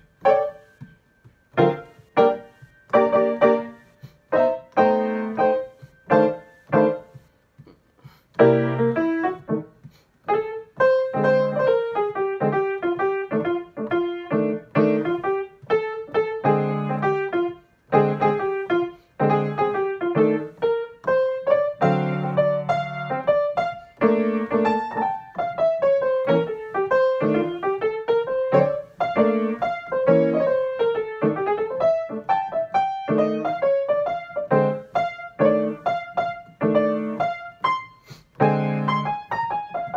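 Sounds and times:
jazz blues piano: 0:00.0 - 0:39.9.

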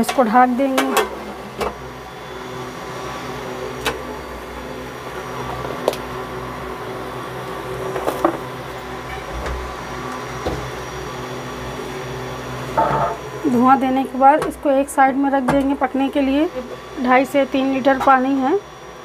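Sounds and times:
steady mechanical hum: 0:00.0 - 0:19.0.

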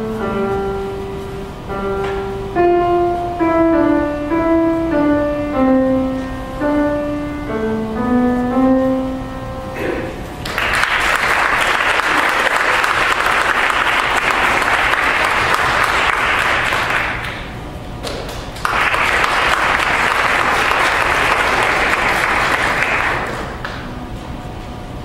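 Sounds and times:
audience applauding: 0:10.4 - 0:23.9.

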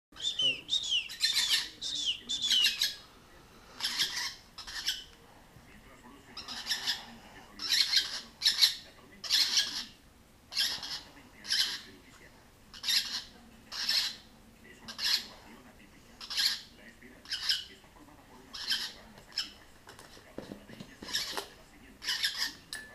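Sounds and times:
bird chicks squawking: 0:00.2 - 0:03.1, 0:03.8 - 0:05.2, 0:06.4 - 0:12.0, 0:12.7 - 0:14.3, 0:14.9 - 0:15.4, 0:16.2 - 0:17.8, 0:18.5 - 0:19.6, 0:21.0 - 0:22.6.

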